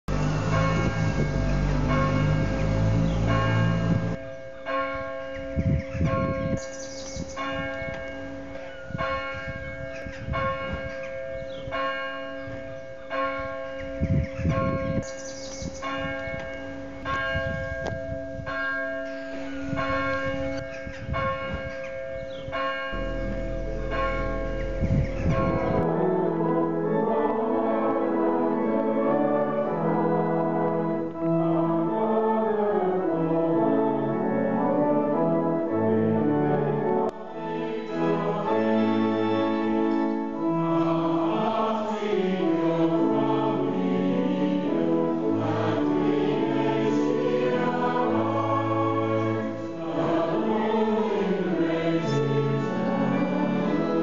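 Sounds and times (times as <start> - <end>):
lingering hum: 0.0 - 4.2, 23.0 - 27.0
low rumble: 0.0 - 4.2, 22.9 - 25.9
church bells ringing: 0.0 - 54.0
church organ playing: 0.0 - 54.0.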